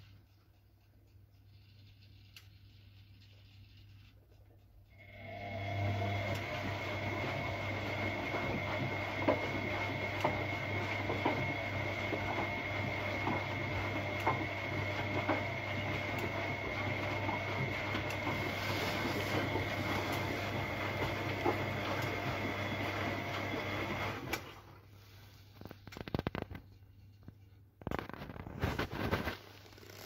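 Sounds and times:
washing machine humming: 4.8s - 25.3s.

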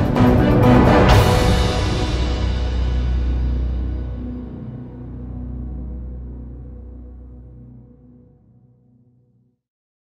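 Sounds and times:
ambient music chord: 0.0s - 9.4s.

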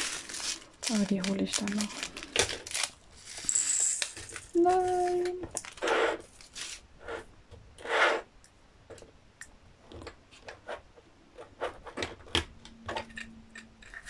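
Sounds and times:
plastic bags rustling: 0.0s - 6.9s.

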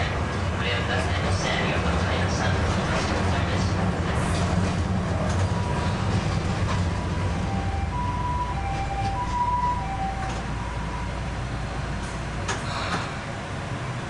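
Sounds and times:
tram motors and wheels rumbling: 0.0s - 14.0s
ambulance siren two-tone: 7.4s - 11.2s.

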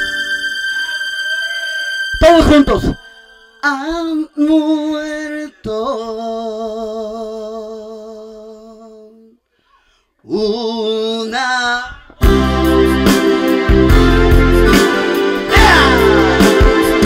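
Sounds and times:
keyboard-led music with a beat: 0.0s - 4.8s, 12.2s - 17.0s
man singing held notes with vibrato: 2.9s - 9.4s, 10.2s - 12.3s, 15.1s - 17.0s.

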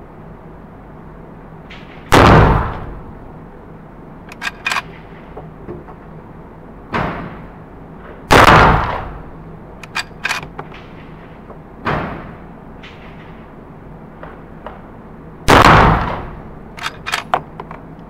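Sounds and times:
rifle shots echoing: 2.1s - 3.1s, 8.3s - 12.3s, 15.5s - 17.3s
metallic lever clacks: 4.3s - 4.9s, 9.8s - 10.8s, 16.8s - 17.8s.

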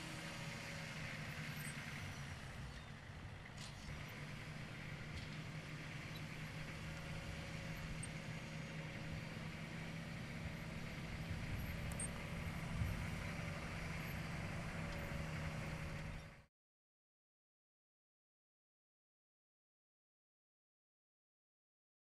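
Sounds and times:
diesel engine running: 0.0s - 16.5s.

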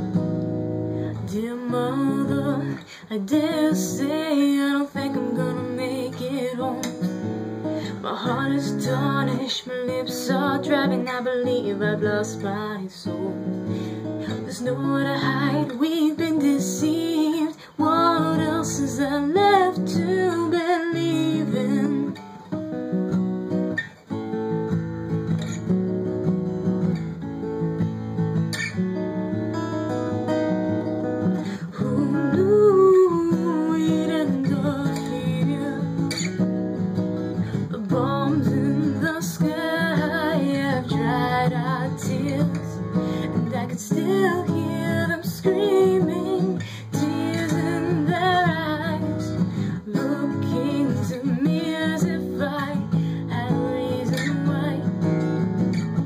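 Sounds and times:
acoustic guitar strumming: 0.0s - 56.0s
person singing: 1.0s - 22.2s, 31.4s - 36.2s, 37.5s - 55.1s.

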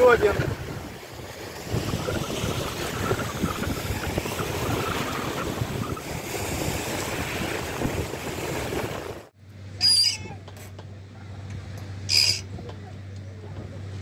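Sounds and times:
wind buffeting microphone: 0.0s - 9.3s
small sea waves: 0.0s - 10.0s.

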